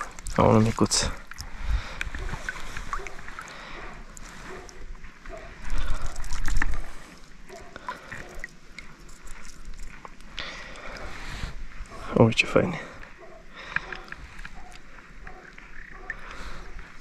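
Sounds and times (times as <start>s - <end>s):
small clicks and splashes: 0.0s - 4.8s, 5.7s - 11.0s, 13.6s - 16.4s
river water running: 0.0s - 11.4s.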